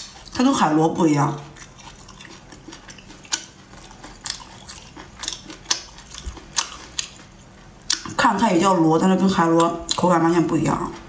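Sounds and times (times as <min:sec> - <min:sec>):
wet chewing clicks and smacks: 0:01.4 - 0:08.2, 0:09.4 - 0:10.1.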